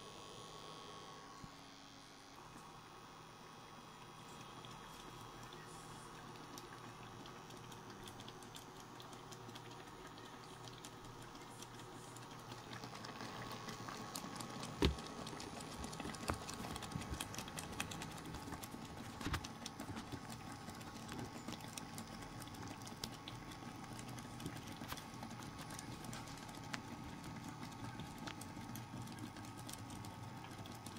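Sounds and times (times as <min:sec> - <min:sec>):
cooktop hum: 0:00.0 - 0:30.9
small ticks and pops: 0:04.2 - 0:30.9.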